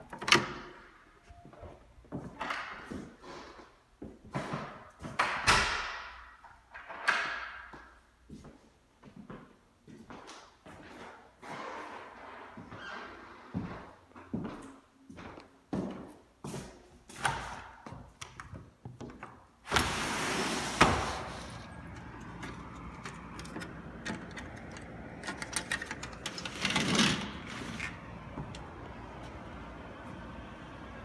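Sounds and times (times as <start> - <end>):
outdoor traffic hum: 0.0 - 31.0
screen door sliding open: 19.6 - 31.0
sliding glass door rolling open: 19.6 - 31.0.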